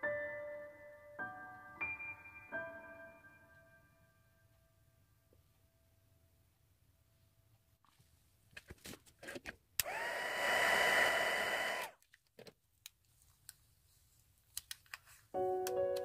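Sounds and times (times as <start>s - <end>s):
small fan whirring: 9.8s - 12.0s
tissue rustling: 13.0s - 15.4s.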